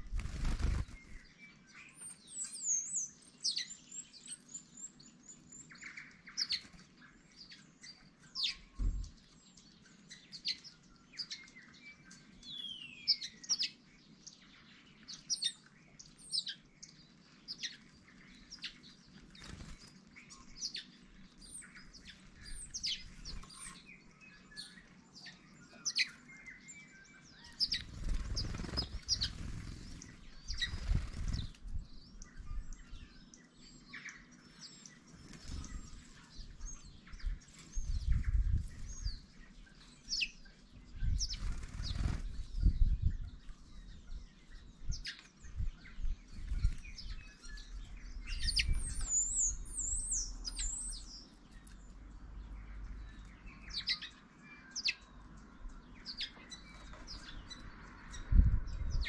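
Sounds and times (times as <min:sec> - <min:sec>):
wings fluttering: 0:00.0 - 0:01.3, 0:18.5 - 0:23.8, 0:27.5 - 0:31.8, 0:35.1 - 0:36.6, 0:41.0 - 0:43.5, 0:46.3 - 0:47.3
small birds chirping and twittering: 0:00.0 - 0:59.0.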